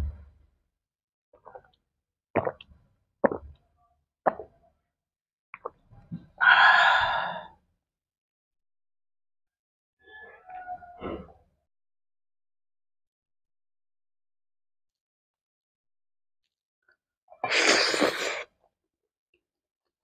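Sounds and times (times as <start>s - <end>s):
gulping while drinking: 2.4s - 2.6s
breathy exhale: 6.4s - 7.5s.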